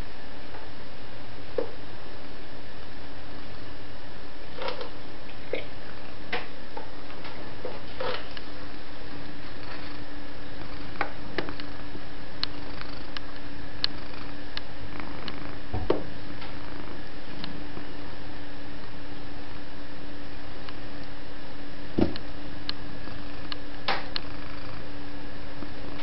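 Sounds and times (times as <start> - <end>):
steady low hum: 0.0 - 26.0
dull thump: 22.0 - 22.2.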